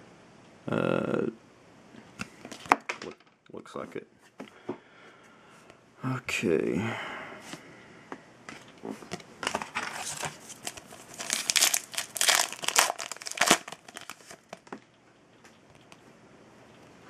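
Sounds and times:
foil wrapper crinkling and tearing: 0:09.5 - 0:14.7.

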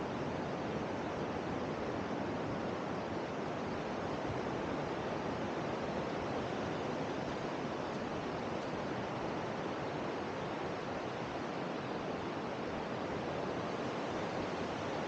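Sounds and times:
wind: 0:00.0 - 0:15.0.

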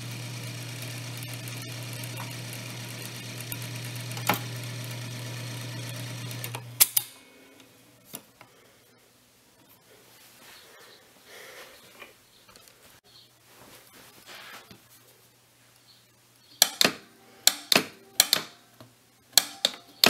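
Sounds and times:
record changer clicks: 0:00.0 - 0:07.7, 0:16.6 - 0:18.6, 0:19.4 - 0:20.0
record changer motor hum: 0:00.0 - 0:08.2.

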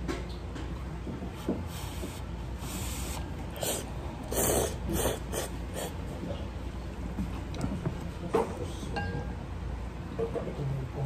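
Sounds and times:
person slurping noodles: 0:02.7 - 0:06.0.

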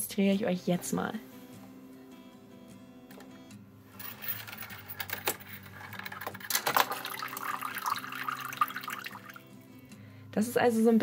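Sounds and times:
toy doll clattering down plastic track: 0:04.6 - 0:07.4
water pouring and splashing: 0:06.5 - 0:09.6.

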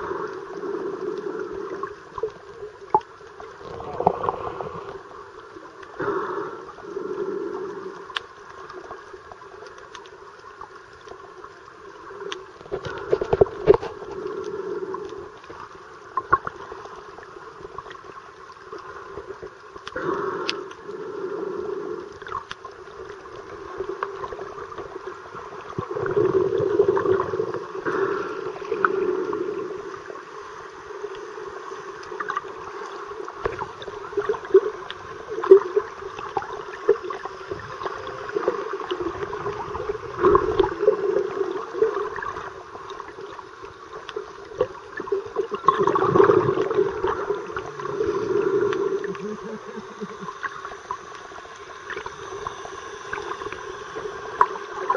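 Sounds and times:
muffled underwater water noise: 0:00.0 - 0:54.9
water gurgling: 0:00.0 - 0:54.9.

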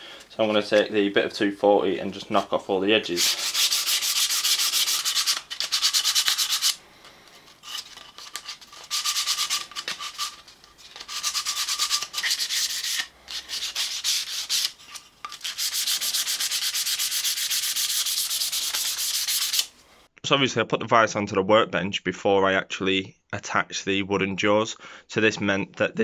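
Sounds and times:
sandpaper scratching on wood: 0:03.1 - 0:06.8, 0:07.6 - 0:10.4, 0:11.0 - 0:14.8, 0:15.4 - 0:19.7.

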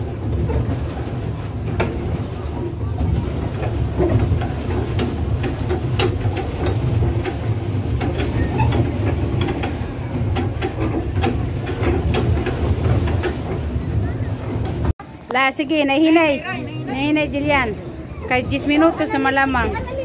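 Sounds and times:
pedal drive clicking and knocking: 0:00.0 - 0:14.9.

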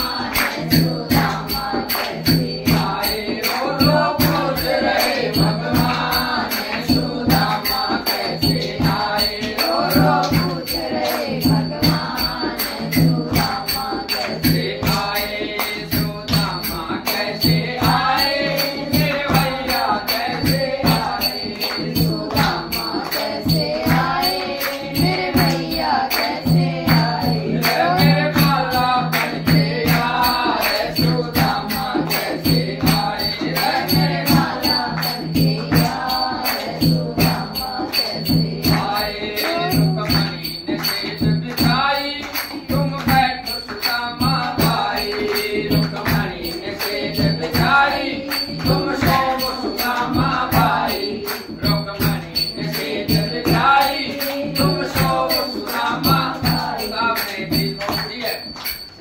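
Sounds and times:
women singing in unison: 0:00.0 - 0:41.3
hand drum beat: 0:00.0 - 0:58.2
hand claps: 0:00.0 - 0:59.0.

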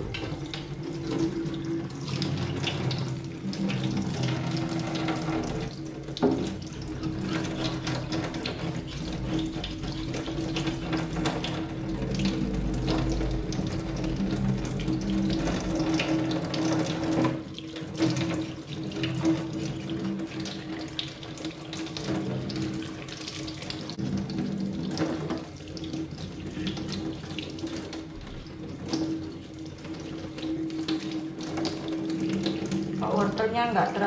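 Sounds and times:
tap water splashing in sink: 0:00.0 - 0:34.0.

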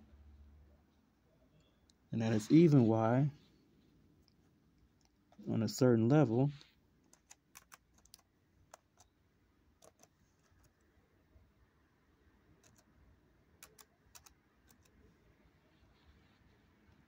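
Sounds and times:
faint keyboard clicks: 0:06.6 - 0:09.1, 0:09.8 - 0:10.9, 0:12.6 - 0:12.9, 0:13.6 - 0:15.0.

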